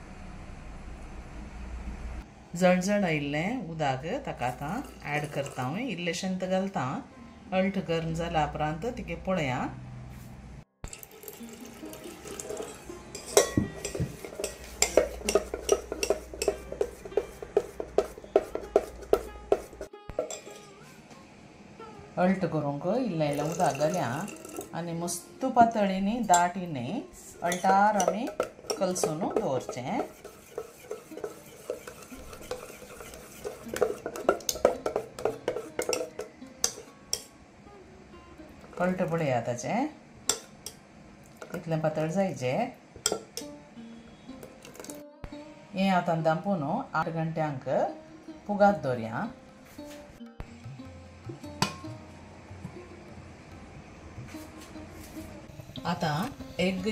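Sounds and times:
metal spoon stirring batter in pot: 4.4s - 5.8s, 12.3s - 20.6s, 23.3s - 24.7s, 27.2s - 36.8s.

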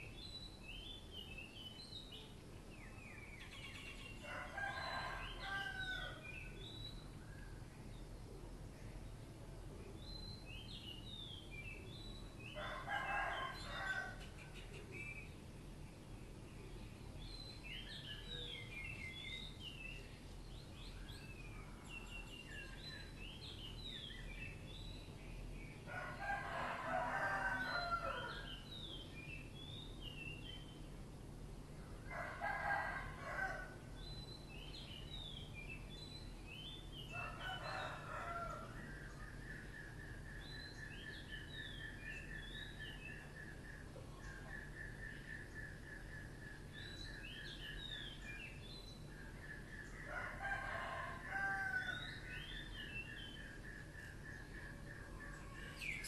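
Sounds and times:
rooster crowing: 4.2s - 6.4s, 12.6s - 14.4s, 25.9s - 28.6s, 32.1s - 33.8s, 37.1s - 38.8s, 50.1s - 52.3s.

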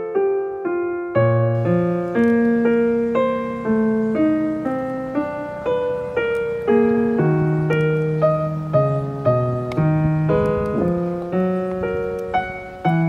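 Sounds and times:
gentle piano music: 0.0s - 13.0s.

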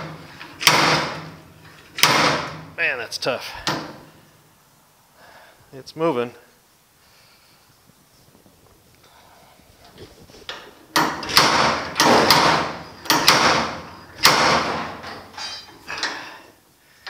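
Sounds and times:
slide hammer metallic clanks: 11.0s - 16.2s.

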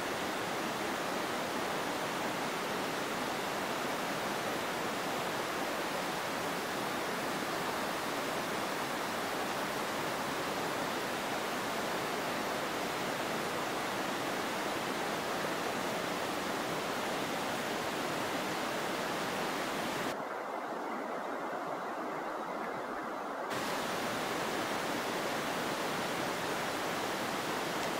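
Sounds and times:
steady rushing noise: 23.1s - 27.9s
high hiss: 23.5s - 27.9s.

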